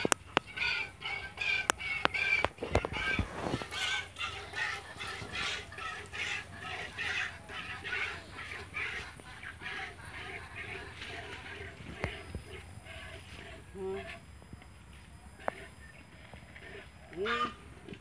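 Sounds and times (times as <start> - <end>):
birds calling: 0.0 - 18.0.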